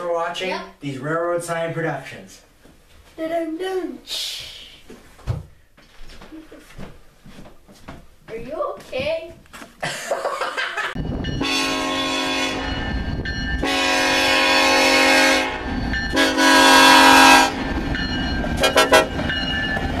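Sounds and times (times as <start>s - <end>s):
low rumble of train: 11.0s - 20.0s
locomotive horn blasts: 11.4s - 12.8s, 13.6s - 17.6s, 18.6s - 19.2s.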